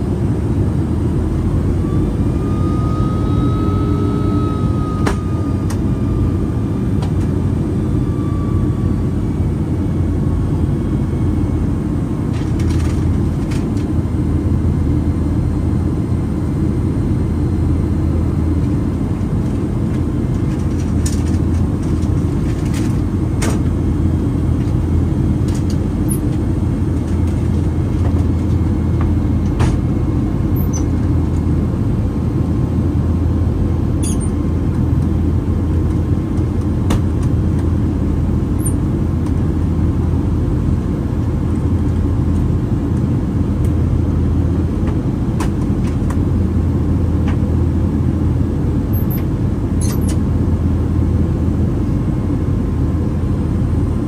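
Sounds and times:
airliner engines and airflow rumble: 0.0s - 54.0s.

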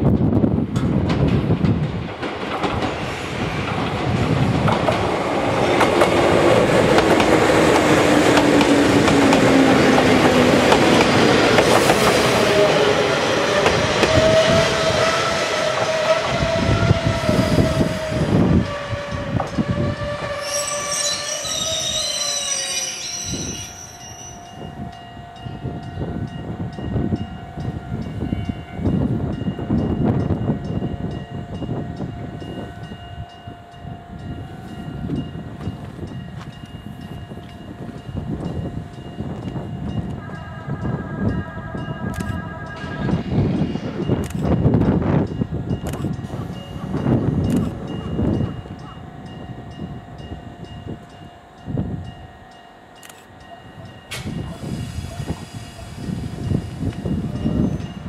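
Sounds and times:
standing train hum: 0.0s - 58.0s
electric train motor whine: 2.9s - 58.0s
high brake squeal: 19.6s - 24.5s, 54.1s - 56.8s.

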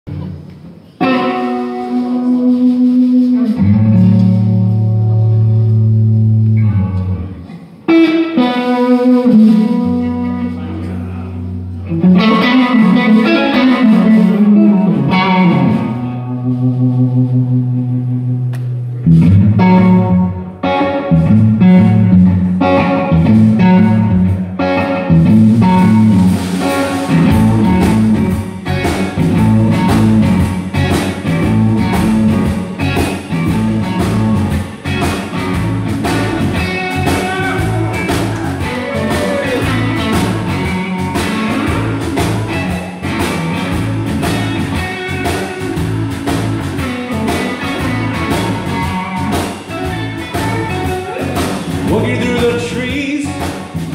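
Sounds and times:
bass guitar: 0.0s - 53.9s
electric guitar: 0.1s - 53.9s
drums playing steady beat: 7.5s - 11.0s, 25.1s - 53.9s.

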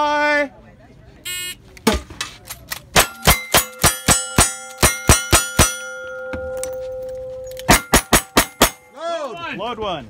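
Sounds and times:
steel target ringing: 3.0s - 9.2s.

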